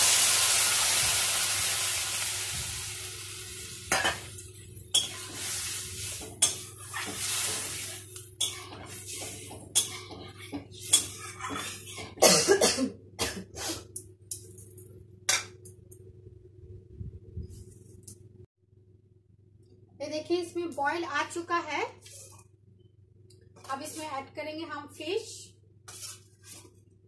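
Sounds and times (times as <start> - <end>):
water hissing in hot pan: 0.0 - 3.9, 5.1 - 6.2, 6.8 - 8.1
spatula scraping metal pan: 25.9 - 26.7.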